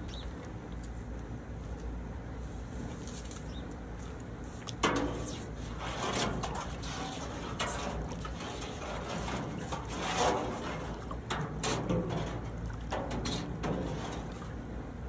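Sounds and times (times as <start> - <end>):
liquid sloshing and splashing: 4.5 - 15.0.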